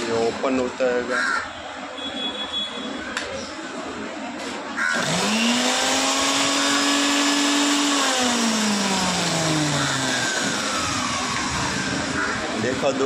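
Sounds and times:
mixer grinder motor whirring: 4.9s - 12.7s.

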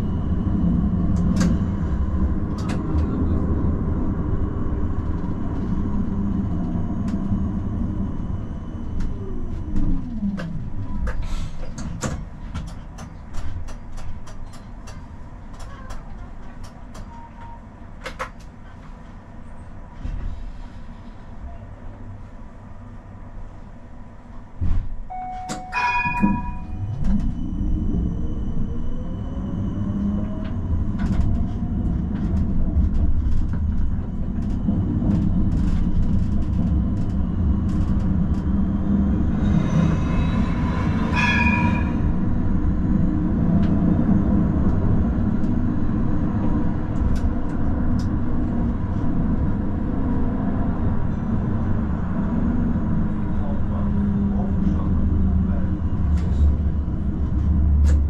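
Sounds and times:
tram ringing signal: 0.0s - 11.2s, 16.9s - 17.9s, 25.1s - 36.0s, 37.1s - 46.9s
tram motor whine and rumble: 0.0s - 58.0s.

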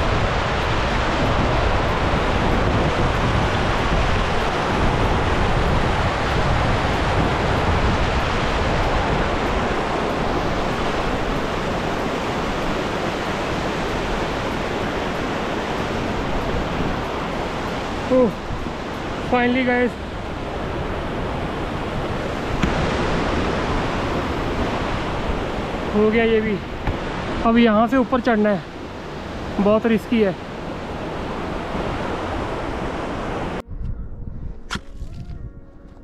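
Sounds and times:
waterfall rushing: 0.0s - 33.6s.

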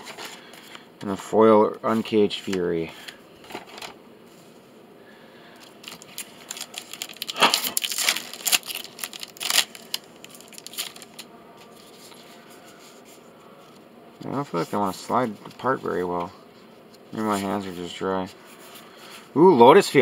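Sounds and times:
foil pack tearing and crinkling: 5.6s - 11.3s.

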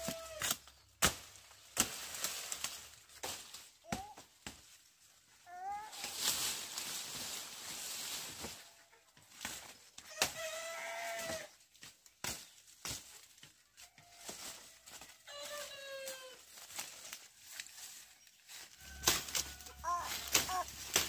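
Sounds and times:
farm animal calling: 18.8s - 21.0s.

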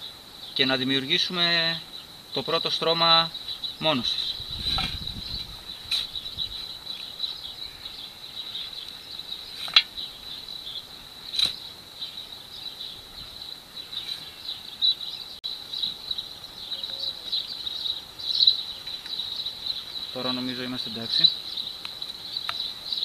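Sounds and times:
insects chirring: 0.0s - 23.0s.

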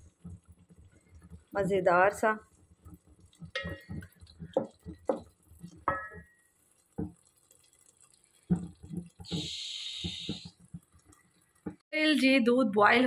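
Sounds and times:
spoon stirring thick curry in pot: 2.4s - 9.5s
steady hiss: 8.5s - 10.7s.

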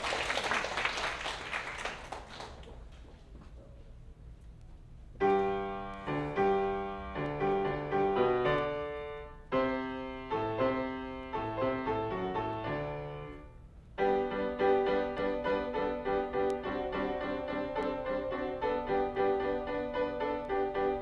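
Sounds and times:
grand piano playing: 5.2s - 21.0s.

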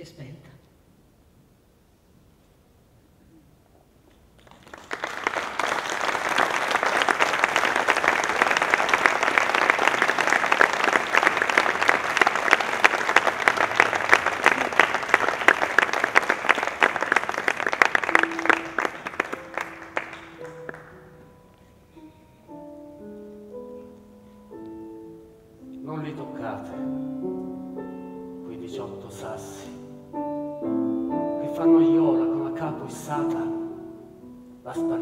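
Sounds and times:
audience clapping: 4.1s - 21.3s
held musical notes: 6.6s - 35.0s.

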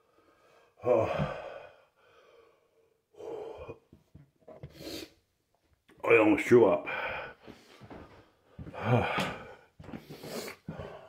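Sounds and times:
man retching and gagging: 0.8s - 1.5s, 8.8s - 9.6s.

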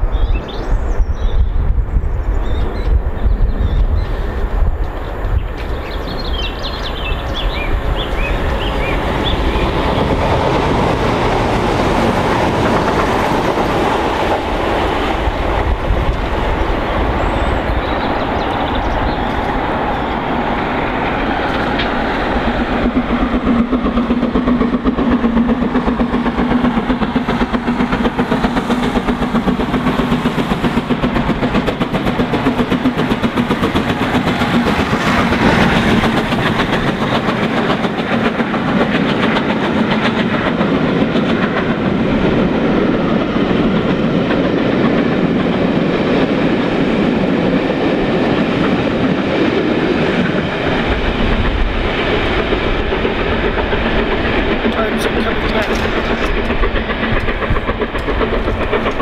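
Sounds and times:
steam train passing at speed: 0.0s - 59.0s
wheels clattering on track: 21.0s - 59.0s.

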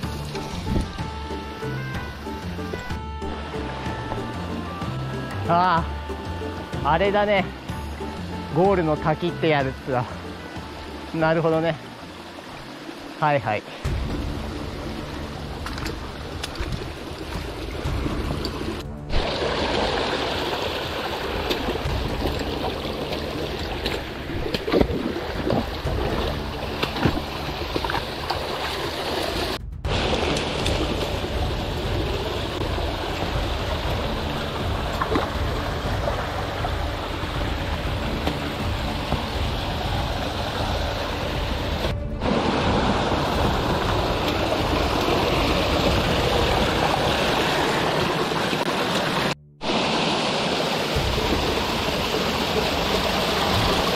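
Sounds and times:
stream water rushing over rocks: 0.0s - 53.9s.

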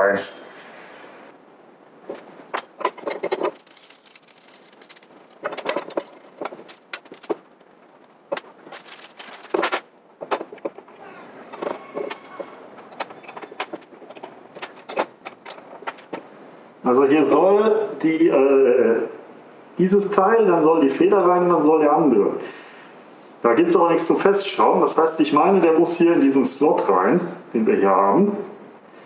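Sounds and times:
small parts clicking and rattling: 2.1s - 16.3s.

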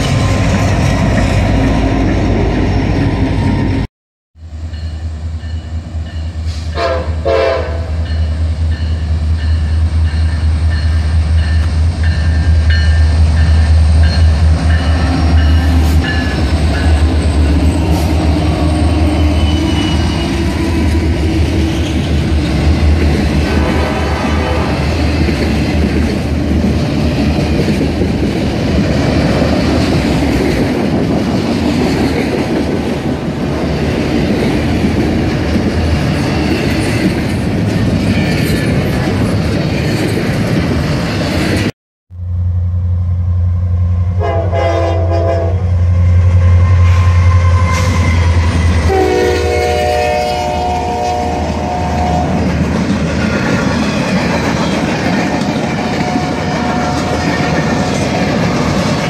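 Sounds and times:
freight train rumbling past: 0.0s - 59.0s
train low hum: 0.0s - 59.0s
locomotive horn blasts: 6.5s - 8.0s, 23.4s - 24.8s, 44.1s - 45.9s, 46.8s - 52.4s.

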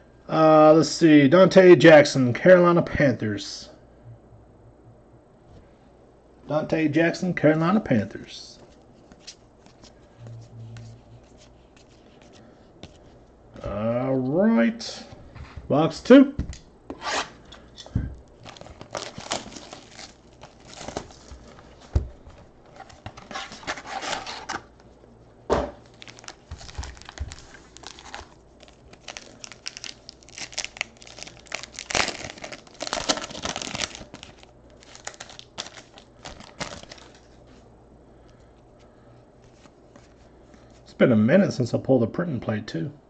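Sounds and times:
foil pack tearing and crinkling: 18.4s - 21.6s, 22.7s - 24.7s, 25.8s - 37.3s.

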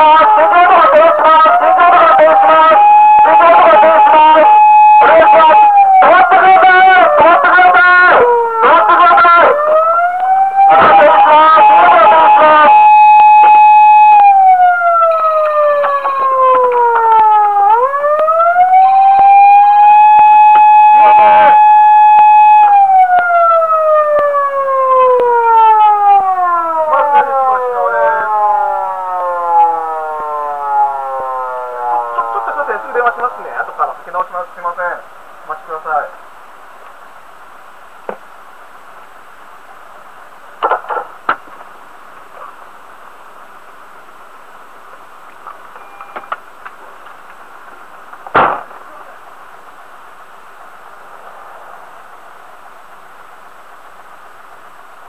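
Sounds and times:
police siren wailing: 0.0s - 34.8s.

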